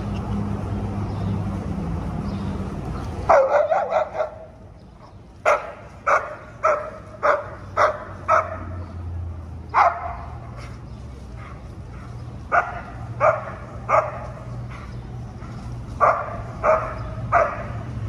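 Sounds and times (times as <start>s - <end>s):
dog barking: 3.3s - 4.5s, 5.4s - 8.8s, 9.7s - 10.3s, 12.5s - 14.4s, 16.0s - 17.8s.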